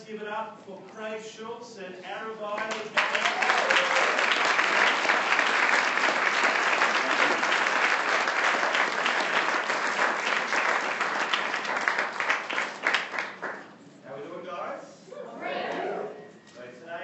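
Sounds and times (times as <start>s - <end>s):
audience applauding: 2.6s - 13.7s.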